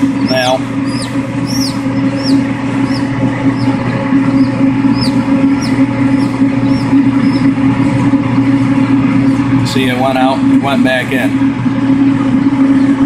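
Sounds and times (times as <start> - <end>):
chick peeping: 0.0 - 7.6
steady low hum: 0.0 - 13.0.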